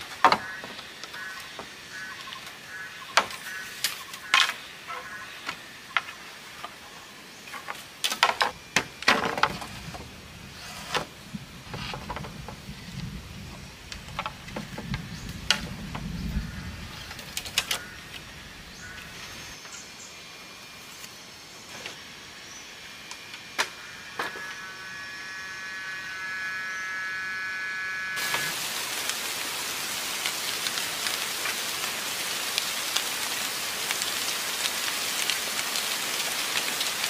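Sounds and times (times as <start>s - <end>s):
birds chirping: 0.2s - 7.8s, 14.7s - 20.3s.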